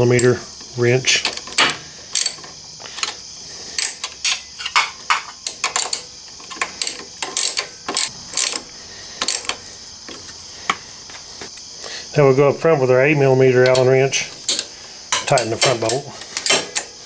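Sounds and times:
socket ratchet clicking: 0:01.2 - 0:09.6
metal tools clinking: 0:03.8 - 0:08.6, 0:13.6 - 0:17.0.

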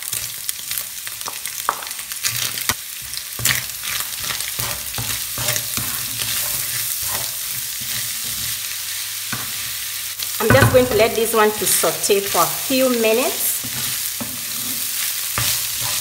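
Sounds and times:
onions sizzling in a pan: 0:00.0 - 0:16.0
wooden spatula scraping a pan: 0:03.0 - 0:09.8, 0:13.6 - 0:16.0.

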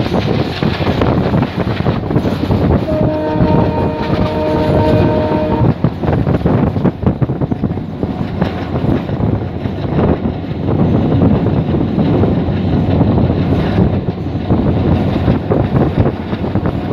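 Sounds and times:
train wheels rumbling on rails: 0:00.0 - 0:16.9
wind noise on microphone: 0:00.0 - 0:16.9
train horn: 0:02.7 - 0:06.0.

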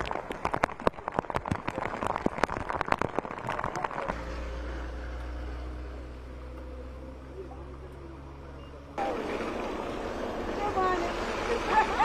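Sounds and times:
noisy street background: 0:03.4 - 0:12.0.

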